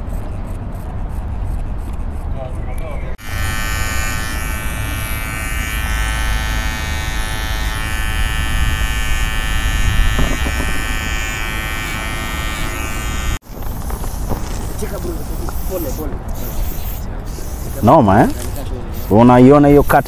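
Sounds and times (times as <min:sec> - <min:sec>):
electric hair trimmer buzzing: 0:03.2 - 0:13.4.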